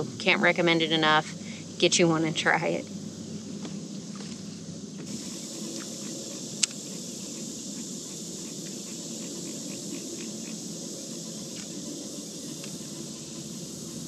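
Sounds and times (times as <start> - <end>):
insect chorus drone: 0.0 - 14.0
low background rumble: 0.0 - 14.0
faint ticks: 5.0 - 6.9, 12.5 - 13.0.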